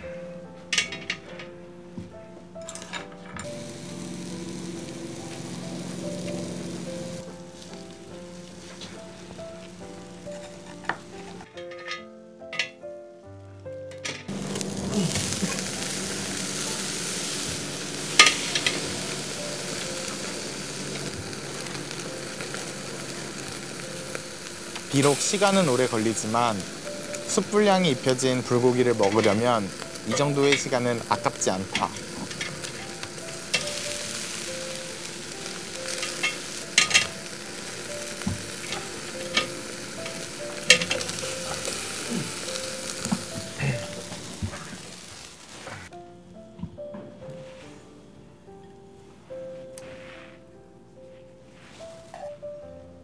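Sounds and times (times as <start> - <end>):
meat sizzling on a grill: 2.1 - 12.8, 13.9 - 45.9
sharp crack: 13.9 - 45.9.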